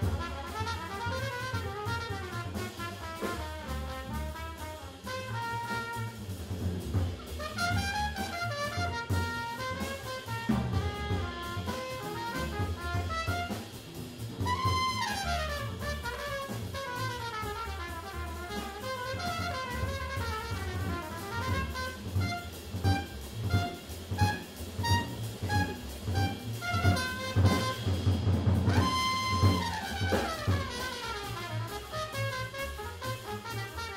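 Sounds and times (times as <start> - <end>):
bass: 0.0 - 33.9
drum kit: 0.0 - 33.9
trombone: 0.0 - 33.9
trumpet: 0.0 - 33.9
saxophone: 14.4 - 27.8, 28.7 - 33.9.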